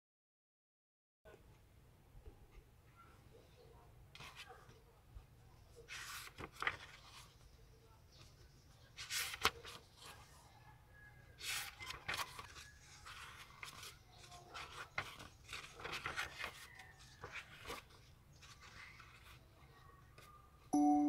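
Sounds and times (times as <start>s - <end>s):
book pages turning: 4.2s - 4.8s, 5.8s - 7.6s, 8.2s - 10.3s, 11.4s - 19.6s.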